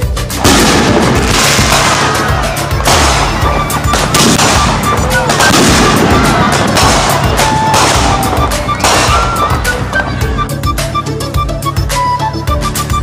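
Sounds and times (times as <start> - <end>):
fireworks banging and crackling: 0.0 - 10.2.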